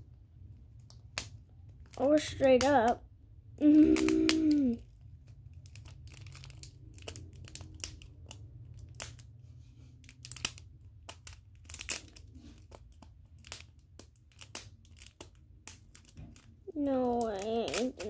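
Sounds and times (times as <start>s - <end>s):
low steady hum: 0.0s - 18.0s
plastic wrapping crinkling: 3.7s - 18.0s.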